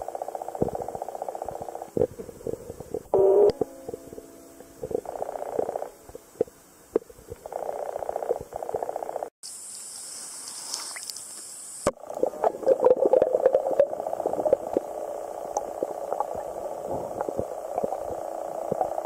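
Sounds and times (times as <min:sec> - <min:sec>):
stream hiss: 0:09.4 - 0:19.0.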